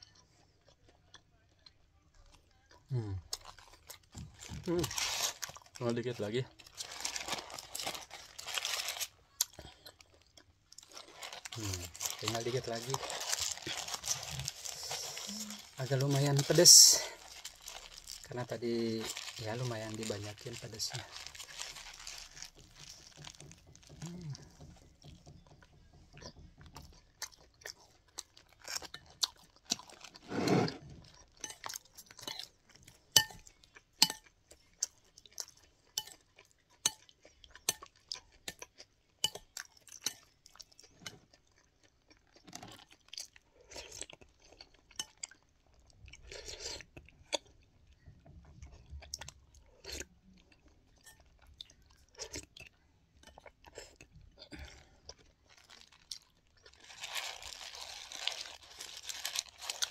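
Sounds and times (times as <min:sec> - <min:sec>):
chewing food: 0:00.0 - 0:59.9.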